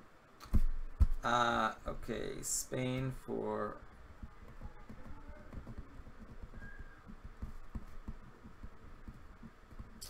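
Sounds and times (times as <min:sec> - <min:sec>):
faint high tone: 0:04.6 - 0:07.1.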